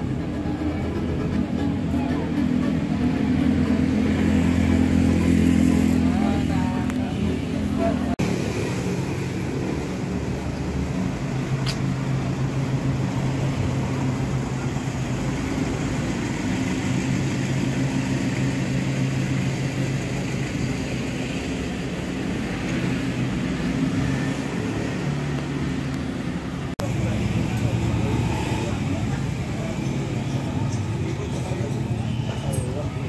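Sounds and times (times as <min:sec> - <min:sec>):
street traffic: 0:00.0 - 0:33.0
sharp click: 0:11.6 - 0:11.9.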